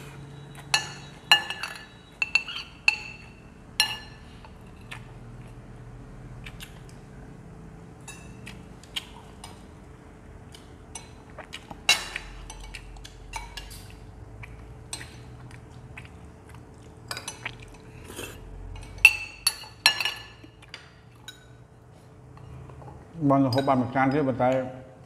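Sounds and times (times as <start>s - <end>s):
spoons clinking on ceramic plates: 0.6s - 4.3s, 18.8s - 21.6s.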